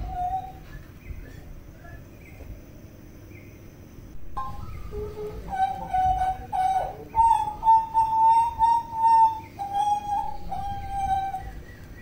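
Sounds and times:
bird whistling flute-like notes: 0.0 - 0.9, 4.3 - 12.0.

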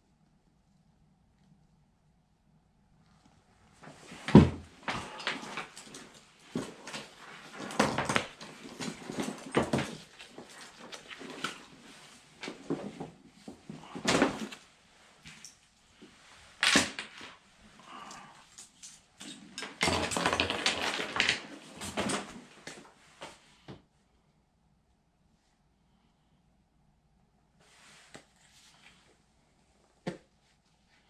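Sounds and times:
fabric rustling and scraping: 3.8 - 17.7
knocks and thumps: 4.2 - 6.0.

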